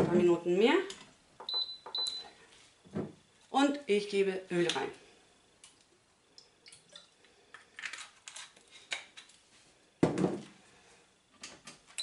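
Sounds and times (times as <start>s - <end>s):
object set down knock: 2.9s - 3.2s, 10.0s - 10.5s.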